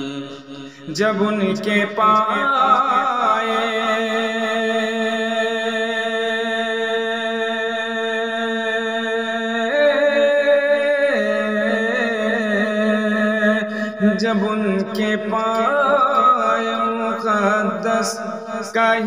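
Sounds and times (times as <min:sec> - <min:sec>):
wordless vocal humming: 0:00.0 - 0:04.6.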